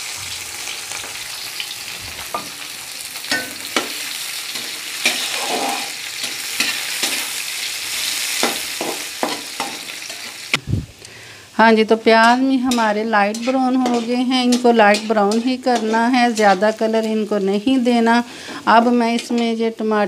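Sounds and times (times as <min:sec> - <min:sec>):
onions sizzling in oil: 0:00.0 - 0:10.6, 0:11.2 - 0:20.0
metal spatula scraping pan: 0:03.2 - 0:10.3, 0:12.2 - 0:17.1.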